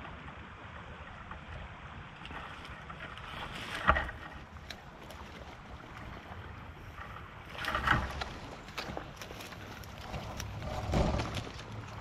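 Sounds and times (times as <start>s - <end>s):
water sloshing from wading: 0.0s - 12.0s.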